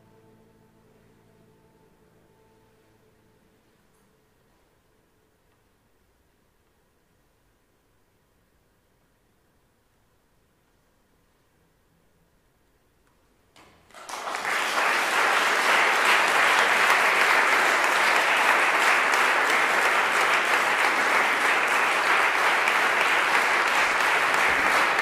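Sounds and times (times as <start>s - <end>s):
audience applause: 13.9s - 25.0s.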